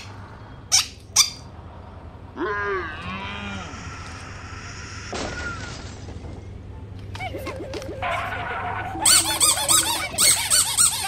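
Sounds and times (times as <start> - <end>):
swooping cartoon animal calls: 7.2 - 11.0.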